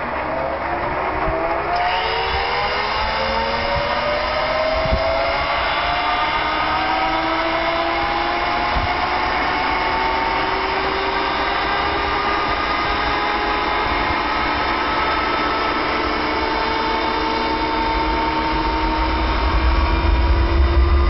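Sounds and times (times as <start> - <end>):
jet engine turbine whine: 0.0 - 21.0
steady rushing noise: 0.0 - 21.0
low rumble: 15.2 - 21.0.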